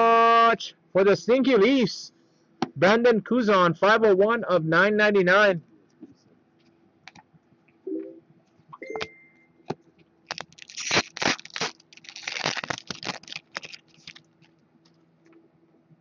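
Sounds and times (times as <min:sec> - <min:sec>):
wrapper tearing and crinkling: 0:10.3 - 0:14.6.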